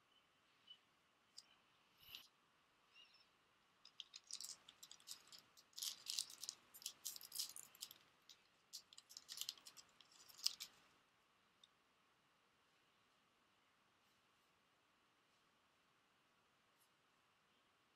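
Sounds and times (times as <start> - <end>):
foil wrapper crinkling: 3.9 - 10.8.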